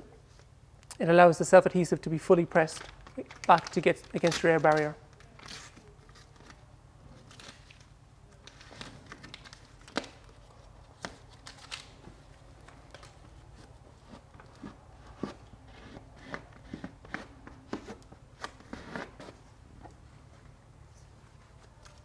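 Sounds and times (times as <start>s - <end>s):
steady low hum: 0.0s - 22.0s
paper liner crinkling: 2.7s - 15.3s
tape patch rubbed and pressed: 13.3s - 19.4s.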